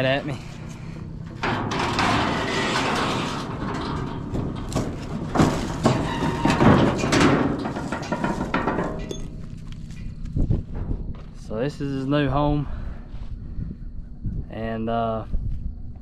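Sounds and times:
metal trailer gate rattling and clanging: 0:00.0 - 0:12.3
hooves knocking on trailer floor: 0:00.0 - 0:12.4.

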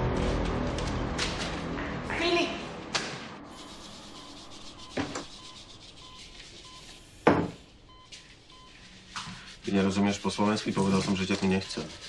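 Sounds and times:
patient monitor beeping: 0:03.5 - 0:09.0.

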